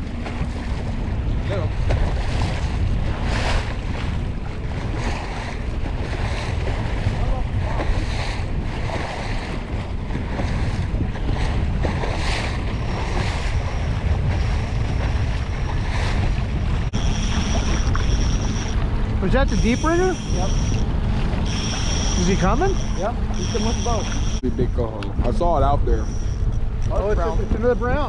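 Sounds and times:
low rumble: 0:00.0 - 0:28.0
water washing along boat hull: 0:00.0 - 0:28.0
wind buffeting microphone: 0:00.0 - 0:28.0.

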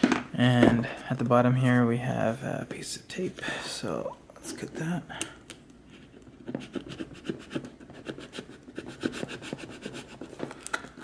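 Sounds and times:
scissor blade scraping cardboard: 0:06.4 - 0:10.4.

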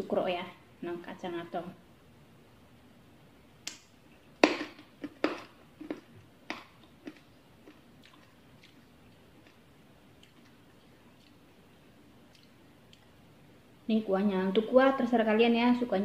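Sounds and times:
crunchy snack chewing: 0:05.1 - 0:11.6.

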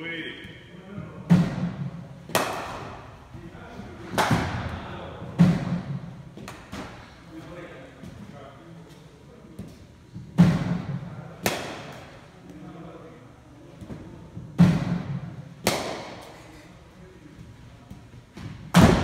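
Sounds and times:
sharp thuds echoing in hall: 0:00.4 - 0:07.1, 0:09.6 - 0:12.2, 0:13.8 - 0:16.4, 0:17.9 - 0:19.0.

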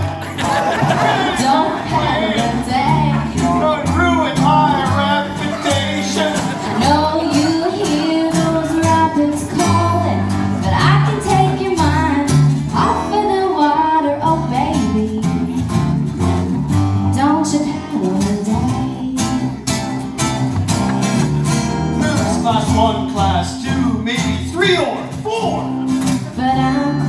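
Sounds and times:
people singing: 0:00.0 - 0:12.4
plucked upright bass: 0:00.0 - 0:27.0
strummed acoustic guitar: 0:00.0 - 0:27.0.

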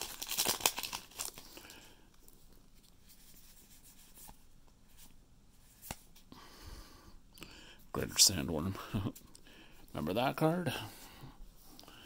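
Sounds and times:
foil wrapper crinkling and tearing: 0:00.0 - 0:01.8
trading cards rustling: 0:00.0 - 0:04.4.

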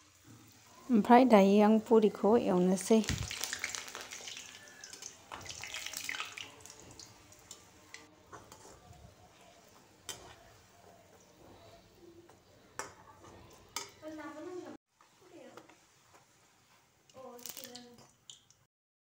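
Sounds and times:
deep-frying sizzle in hot oil: 0:00.0 - 0:08.6, 0:17.1 - 0:18.7.

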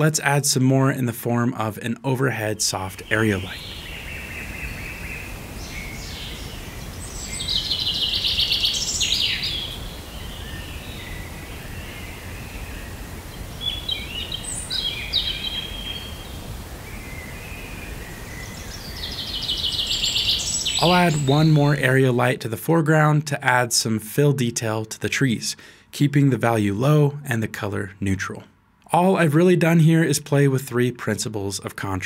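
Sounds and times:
low background hiss: 0:00.0 - 0:32.0
birds singing: 0:02.7 - 0:22.1.

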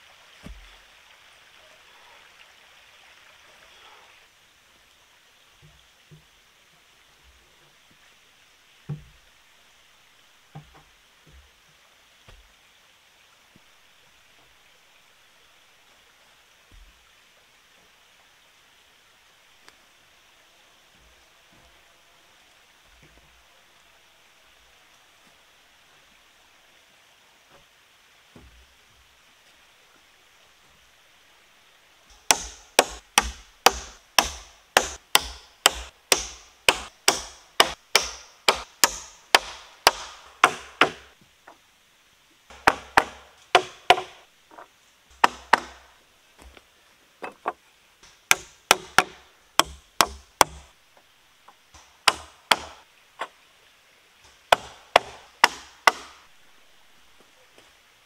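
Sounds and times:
hammer driving nails into timber: 0:32.2 - 0:41.1, 0:42.5 - 0:44.2, 0:48.3 - 0:50.7, 0:51.8 - 0:52.8, 0:54.5 - 0:56.2.

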